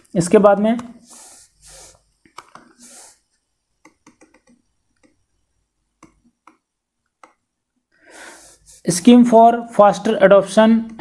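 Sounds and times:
mouse scroll wheel clicks: 0:03.8 - 0:05.2.

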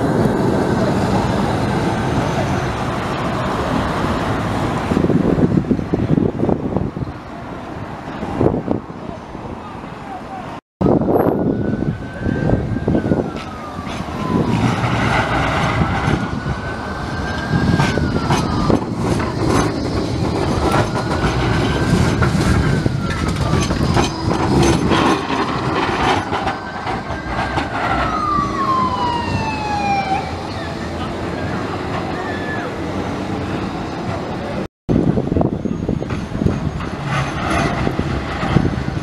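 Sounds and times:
tram rumbling on rails: 0:00.0 - 0:39.0
siren wailing: 0:10.8 - 0:33.0.

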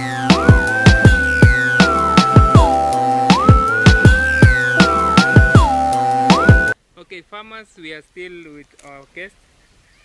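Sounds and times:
gliding synth note: 0:00.0 - 0:06.8
deep kick drum beat: 0:00.3 - 0:06.8.

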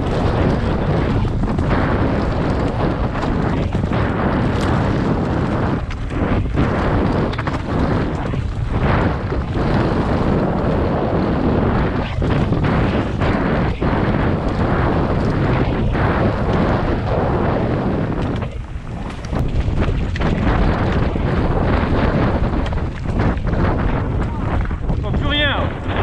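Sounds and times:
mountain bike clattering on trail: 0:00.0 - 0:26.0
wind buffeting microphone: 0:00.0 - 0:26.0.

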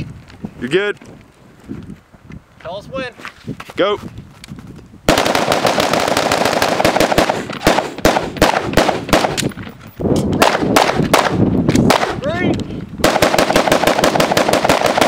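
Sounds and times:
pistol shots: 0:05.1 - 0:09.5, 0:10.4 - 0:12.2, 0:13.0 - 0:15.0
rapid semi-automatic rifle shots: 0:05.1 - 0:09.5, 0:10.4 - 0:12.2, 0:13.0 - 0:15.0.

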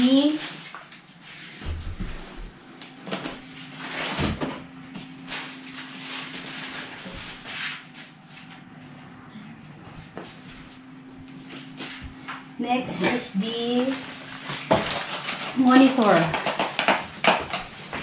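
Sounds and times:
faint steady hum: 0:00.0 - 0:18.0
cardboard packaging scraping and rustling: 0:03.1 - 0:08.6, 0:13.4 - 0:18.0.

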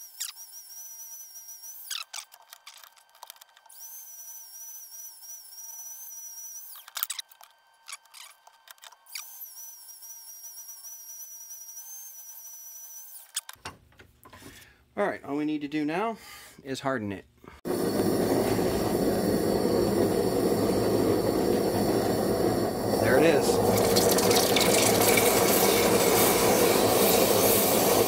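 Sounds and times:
rotary tool whining: 0:00.0 - 0:13.6, 0:17.7 - 0:28.0.

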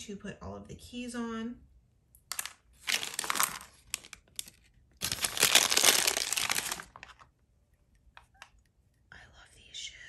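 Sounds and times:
plastic bag crinkling: 0:02.3 - 0:07.3.

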